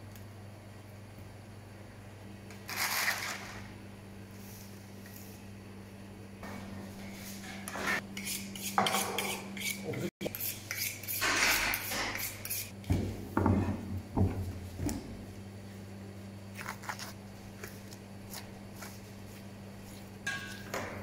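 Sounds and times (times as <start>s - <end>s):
low electrical hum: 0.0s - 21.0s
knife clicking and scraping: 8.2s - 11.2s, 11.8s - 12.7s.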